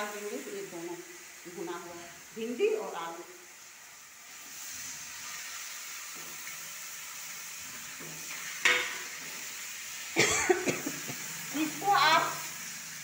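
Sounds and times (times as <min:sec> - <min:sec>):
vegetables sizzling in oil: 0:00.0 - 0:13.0
ladle clanging on pan: 0:08.0 - 0:09.4.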